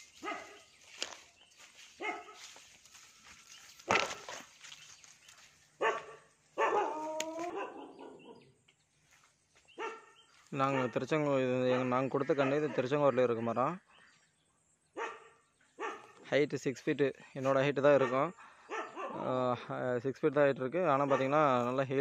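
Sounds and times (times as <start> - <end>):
dog barking: 0.2 - 0.7, 2.0 - 2.6, 5.8 - 8.4, 9.8 - 11.0, 11.7 - 13.5, 15.0 - 16.2, 18.0 - 19.3, 21.0 - 21.5.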